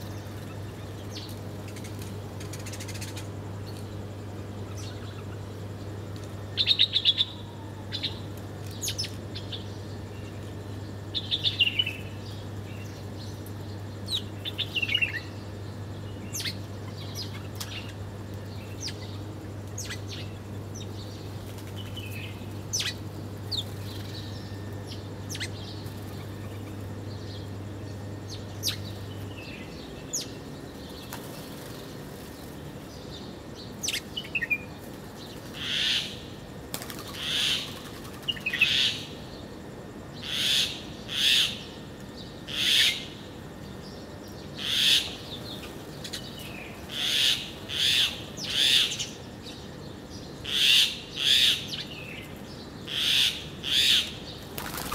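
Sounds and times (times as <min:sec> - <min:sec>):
small birds chirping: 0:00.0 - 0:54.9
hissing rasping bird calls: 0:35.5 - 0:39.2, 0:40.2 - 0:41.8, 0:44.6 - 0:49.4, 0:50.4 - 0:54.9.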